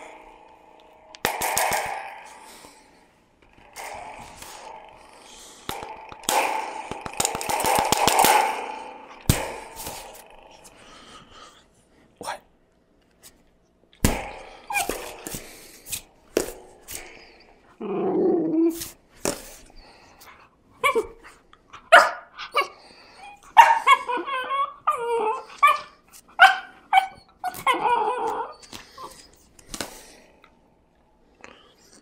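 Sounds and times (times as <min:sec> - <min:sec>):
puppy growling: 0:16.5 - 0:18.8, 0:22.4 - 0:25.9, 0:26.6 - 0:29.2
puppy yipping and barking: 0:23.6 - 0:29.1.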